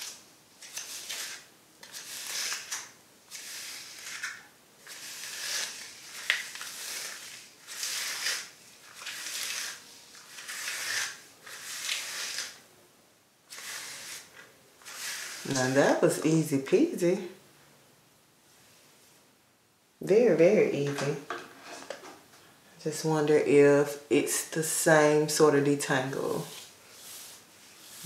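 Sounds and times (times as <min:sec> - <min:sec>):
brush raking through wet hair: 0:00.0 - 0:12.6, 0:13.5 - 0:16.6, 0:26.1 - 0:28.0.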